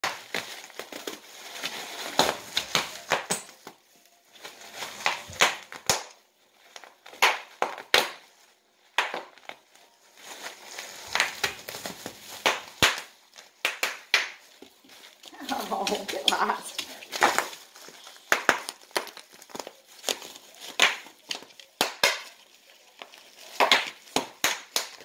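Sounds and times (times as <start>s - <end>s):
bubble wrap popping: 0.0s - 25.0s
plastic crinkling: 0.0s - 25.0s.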